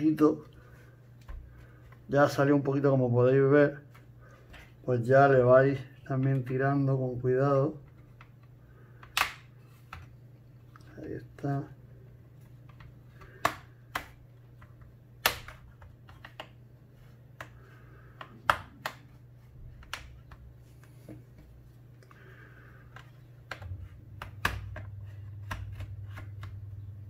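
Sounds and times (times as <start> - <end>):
plastic clips snapping: 8.2 - 10.0, 15.2 - 16.6.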